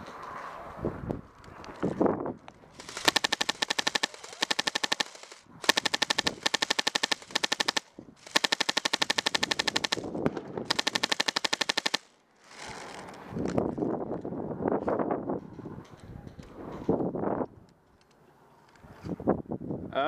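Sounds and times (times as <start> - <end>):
airsoft gun firing bursts: 2.8 - 13.0.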